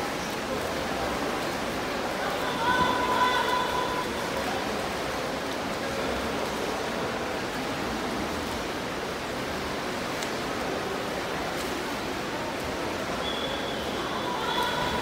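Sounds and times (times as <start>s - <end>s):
steady rush of hall noise: 0.0s - 15.0s
swimmers splashing: 0.0s - 15.0s.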